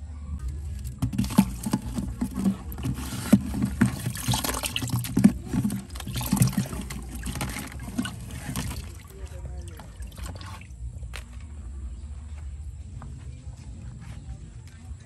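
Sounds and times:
basket scraping inside plastic cooler: 0.8s - 9.1s
small water splashes: 1.1s - 10.8s.

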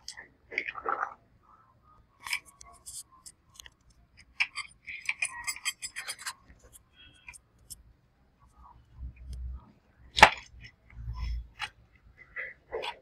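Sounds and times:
screwdriver clicks and scrapes: 2.2s - 7.8s.

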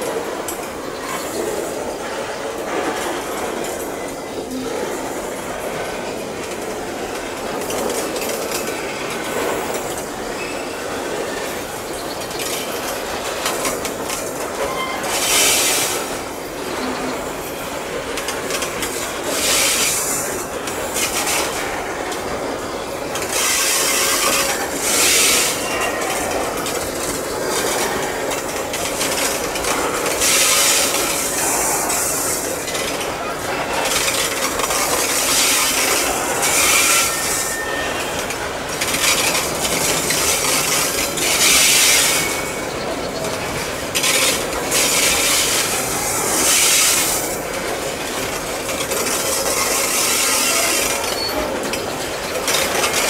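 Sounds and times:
steel wheels grinding on rails: 0.0s - 53.0s
train wagons rolling: 0.0s - 53.0s.

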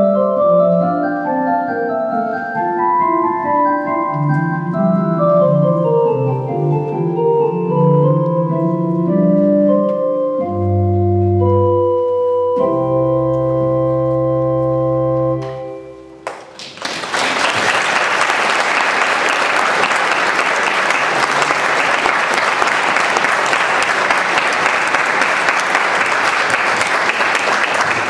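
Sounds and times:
audience applause: 16.2s - 28.0s.

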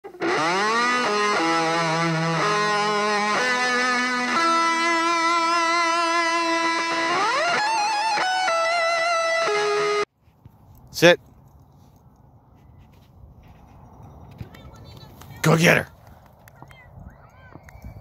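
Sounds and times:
electric guitar slow melody: 0.1s - 10.1s.

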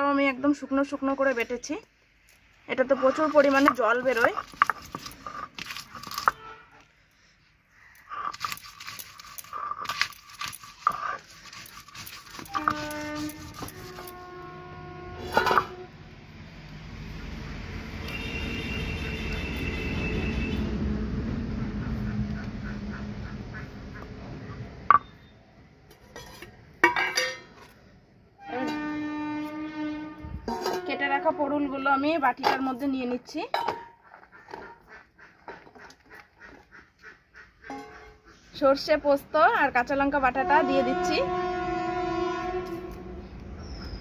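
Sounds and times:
stone roller grinding chillies: 2.7s - 6.5s, 8.0s - 14.4s
horn-like pitched tone: 12.4s - 16.1s, 18.0s - 20.9s, 28.4s - 32.1s, 40.4s - 43.4s.

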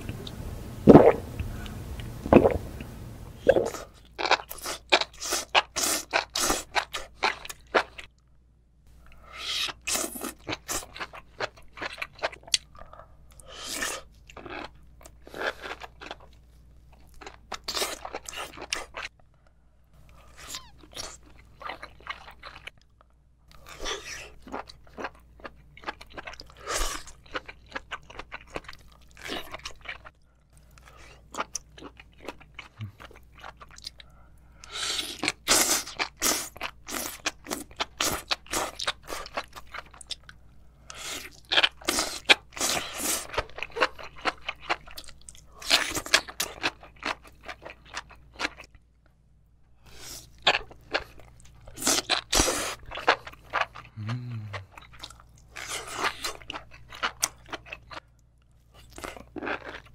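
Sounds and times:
crunching and chewing mushrooms: 49.9s - 58.1s, 58.7s - 59.9s.

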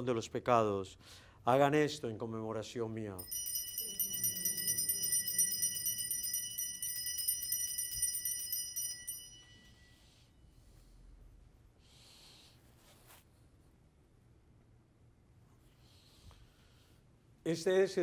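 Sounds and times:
altar bells jingling: 3.2s - 10.0s.

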